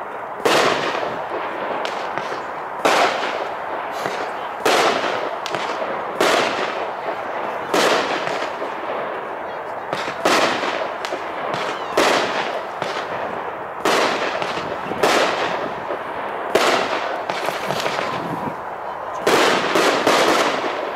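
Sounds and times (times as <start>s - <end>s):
continuous firework noise: 0.0s - 20.9s
firework bangs: 0.0s - 20.9s
small firework pops: 0.4s - 9.0s, 9.9s - 13.1s, 13.8s - 18.6s.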